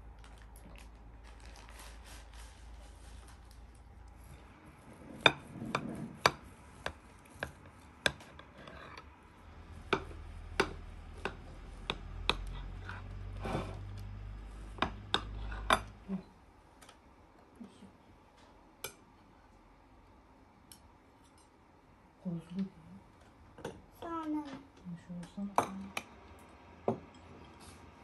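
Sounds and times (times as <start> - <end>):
knife scraping ceramic plate: 8.1 - 9.1.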